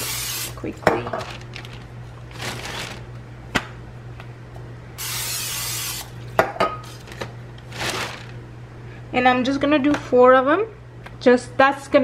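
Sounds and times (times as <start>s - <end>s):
cooking spray hissing: 0.0s - 0.6s, 5.0s - 6.1s.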